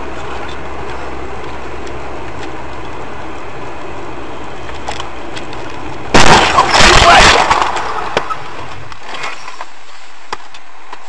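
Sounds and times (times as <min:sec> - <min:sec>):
car engine and tyres from inside: 0:00.0 - 0:06.6, 0:07.2 - 0:11.0
loud noisy impact: 0:06.1 - 0:08.4.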